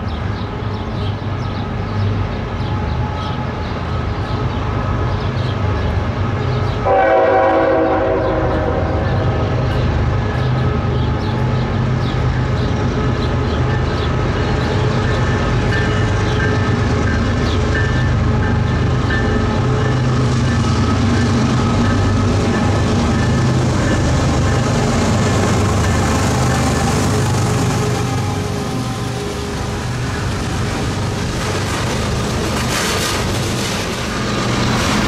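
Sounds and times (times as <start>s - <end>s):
diesel locomotive engine drone: 0.0s - 35.0s
train horn: 6.8s - 9.5s
train wheels clicking on rail joints: 9.0s - 35.0s.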